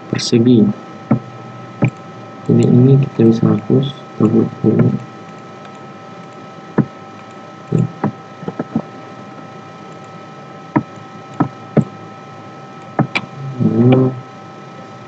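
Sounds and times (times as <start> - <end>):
faint hiss and hum: 0.0 - 15.0
mouse and keyboard clicks: 7.2 - 8.8, 12.8 - 13.3.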